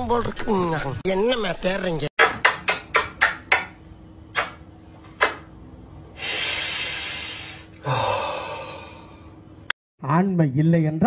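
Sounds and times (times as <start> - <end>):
kissing smacks: 4.3 - 4.6
long breathy hiss: 6.2 - 9.3.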